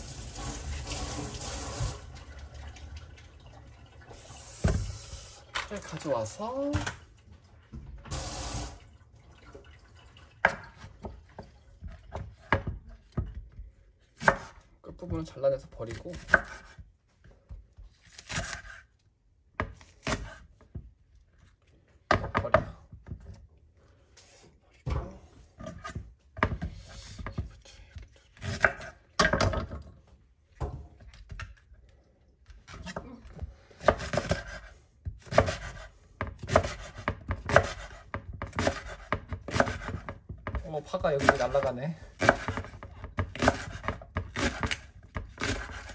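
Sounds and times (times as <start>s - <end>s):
knife chopping green onions: 11.8s - 18.9s, 19.6s - 20.8s, 28.4s - 29.5s, 32.7s - 45.9s.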